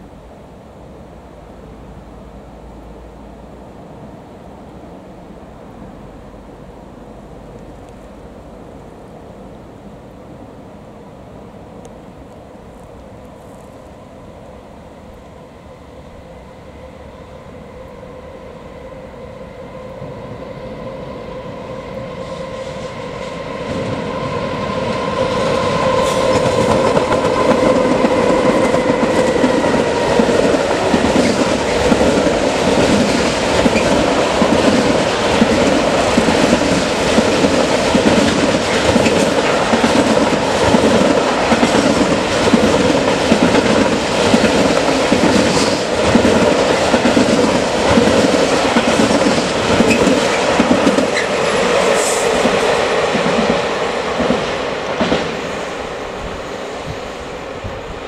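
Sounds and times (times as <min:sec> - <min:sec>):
locomotive steady tone: 0:00.0 - 0:58.0
train wagons clattering on rails: 0:24.9 - 0:55.8.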